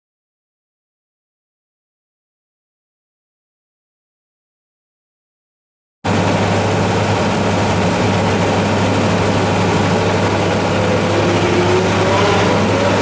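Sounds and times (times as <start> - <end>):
off-road vehicle engine running: 6.1 - 13.0.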